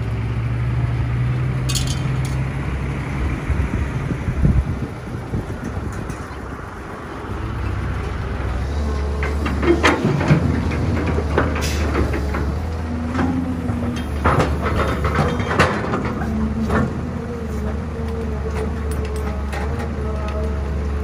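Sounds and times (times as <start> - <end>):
excavator diesel engine running: 0.0 - 21.0
rocks clanking into steel truck bed: 9.2 - 17.0.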